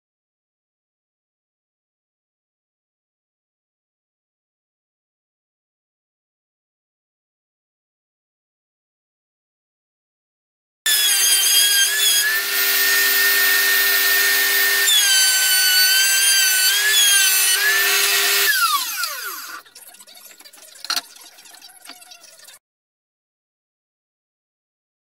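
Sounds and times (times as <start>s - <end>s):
table saw cutting wood: 10.9s - 21.1s.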